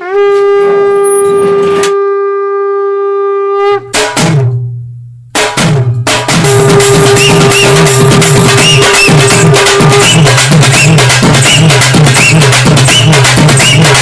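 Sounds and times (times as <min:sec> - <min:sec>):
long held note: 0:00.0 - 0:04.0
driving drum beat: 0:03.9 - 0:04.6, 0:05.3 - 0:14.0
heavy drum hits: 0:03.9 - 0:04.6, 0:05.3 - 0:14.0
pulsing bass line: 0:06.4 - 0:14.0.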